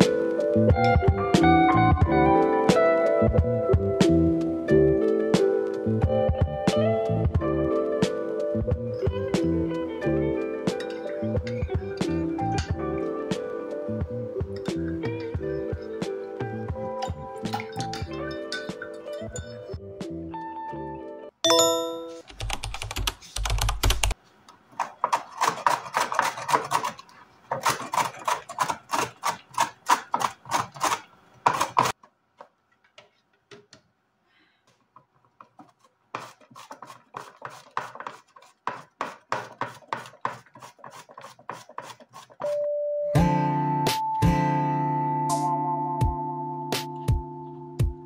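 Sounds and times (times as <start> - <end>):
music: 0.0 - 21.4, 42.5 - 48.0
vegetable scraping on grater: 24.8 - 32.0, 35.5 - 42.6.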